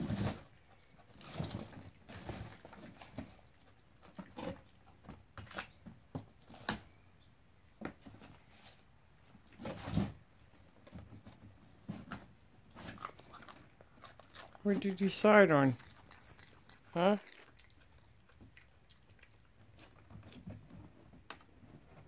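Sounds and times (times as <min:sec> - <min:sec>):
monkey rummaging in cardboard box: 0:00.0 - 0:07.0, 0:09.6 - 0:15.4.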